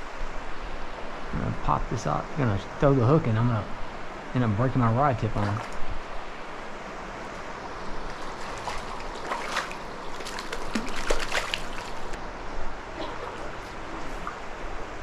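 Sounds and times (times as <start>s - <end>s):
water splashes and sloshes: 0.0s - 15.0s
stream rippling over rocks: 4.4s - 15.0s.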